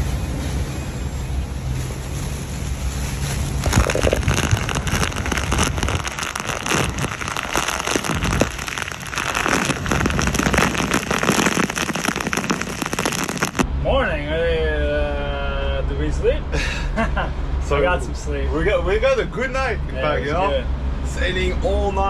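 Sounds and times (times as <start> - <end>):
rain and sea spray hissing: 1.6 - 13.6.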